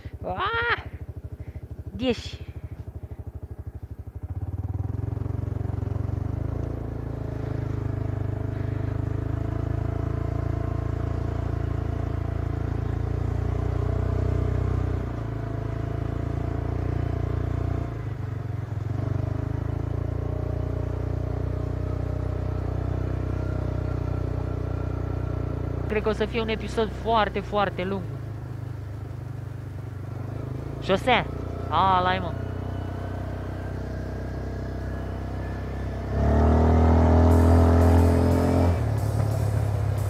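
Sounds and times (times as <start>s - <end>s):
atv engine running: 0.0s - 40.0s.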